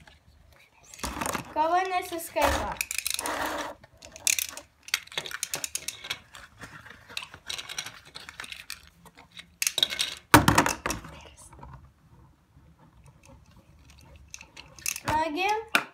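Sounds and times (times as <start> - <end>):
plastic spinning tops clicking: 1.8 - 6.3, 13.8 - 15.6.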